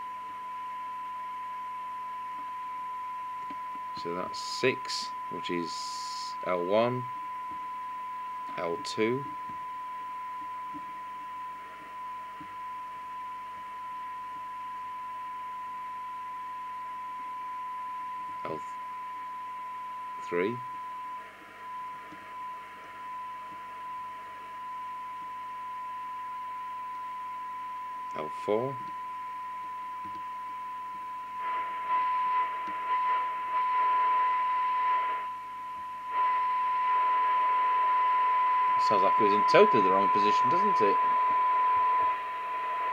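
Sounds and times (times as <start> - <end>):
steady test tone: 0.0 - 42.9
radio receiver hiss: 3.4 - 7.2, 8.5 - 9.6, 18.3 - 18.9, 20.2 - 24.6, 28.0 - 29.0, 30.0 - 42.9.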